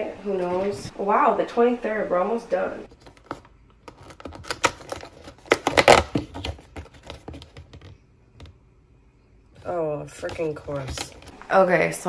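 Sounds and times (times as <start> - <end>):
cardboard tearing and clicking: 3.0 - 7.7, 10.2 - 11.3.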